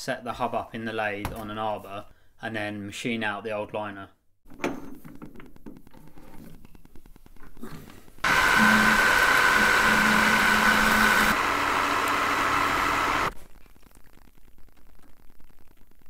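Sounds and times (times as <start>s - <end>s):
metal lathe machining with whine: 8.3s - 13.4s.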